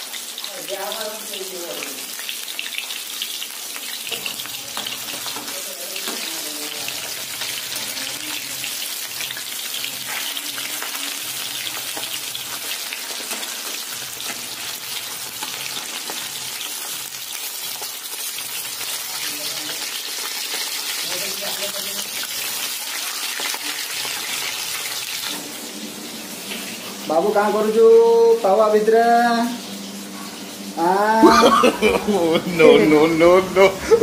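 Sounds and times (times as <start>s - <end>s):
fish deep-frying in oil: 0.0s - 34.0s.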